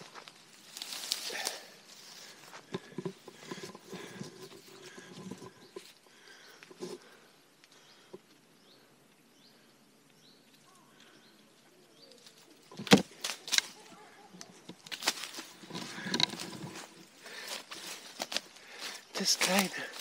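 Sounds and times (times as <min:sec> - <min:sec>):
faint bird chirps: 0:04.7 - 0:12.7
branch striking tree branches: 0:12.2 - 0:20.0.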